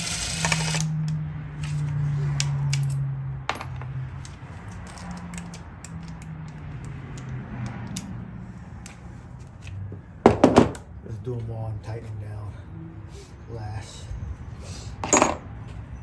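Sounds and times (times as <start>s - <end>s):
hand tools clicking and clinking: 2.4s - 8.1s.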